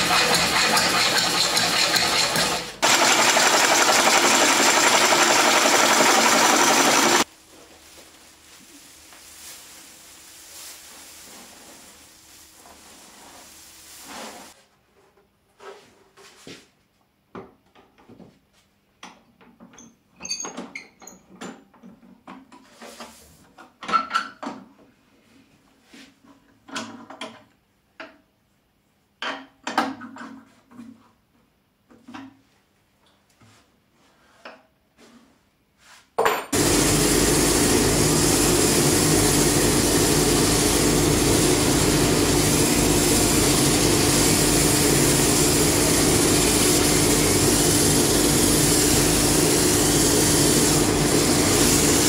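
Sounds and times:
gouge shaving wood on lathe: 0.0 - 7.3, 36.6 - 52.0.

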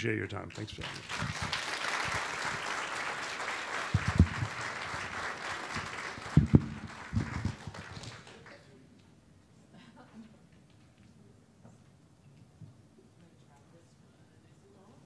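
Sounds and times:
audience applauding: 0.6 - 8.7
low thumps: 4.0 - 4.6, 6.3 - 7.6.

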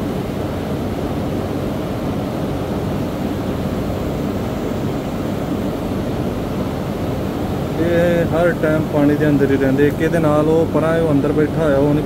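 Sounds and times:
misting fans blowing spray: 0.0 - 12.0.

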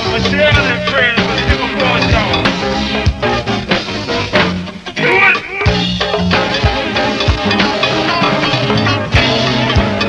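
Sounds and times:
bass line low notes: 0.0 - 5.0
drums and percussion beat: 0.0 - 10.0.

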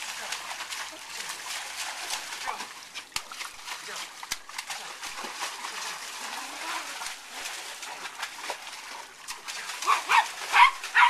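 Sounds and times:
small dog yapping: 9.9 - 11.0.

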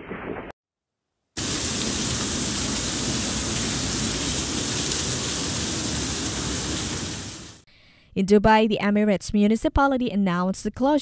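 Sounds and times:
water pouring through ceiling: 1.4 - 7.6.

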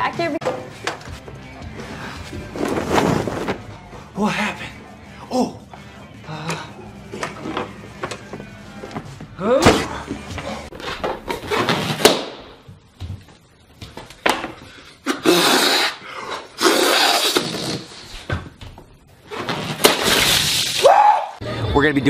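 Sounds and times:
breaths blown into balloon: 15.0 - 18.0.

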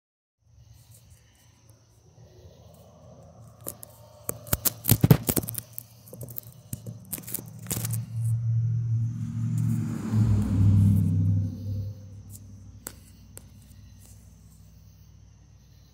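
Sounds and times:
low steady hum: 6.3 - 15.9.

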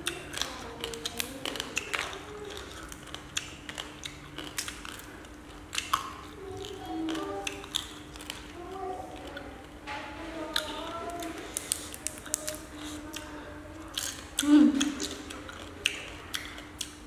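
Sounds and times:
crab shells cracking: 10.6 - 13.0.

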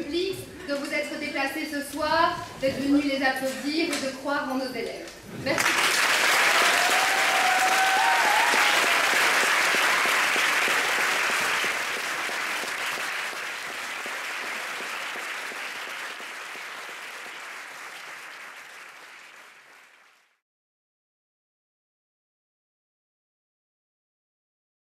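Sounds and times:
crowd applauding: 5.5 - 20.4.

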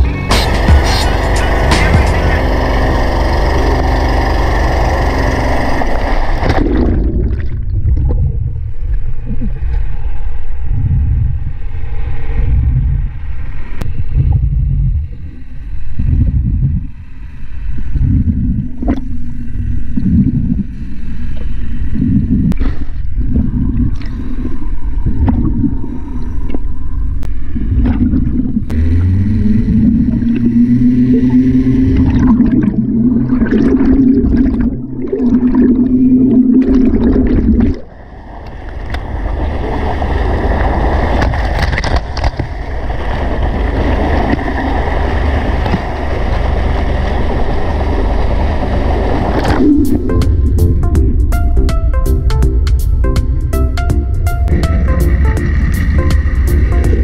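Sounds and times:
steady hum: 0.0 - 57.0
underwater rumbling and bubbling: 2.5 - 57.0
sharp underwater clicks: 41.2 - 42.6.

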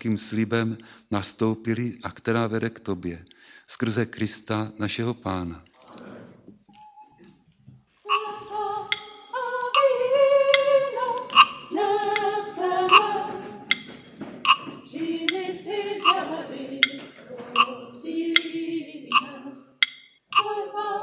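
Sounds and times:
group singing a hymn: 8.0 - 21.0
sharp regular beat: 8.1 - 21.0.

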